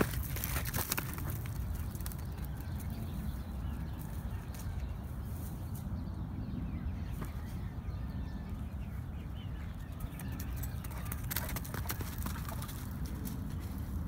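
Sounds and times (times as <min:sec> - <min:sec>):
dogs running clicks and scuffs: 0:00.0 - 0:04.9, 0:09.6 - 0:14.0.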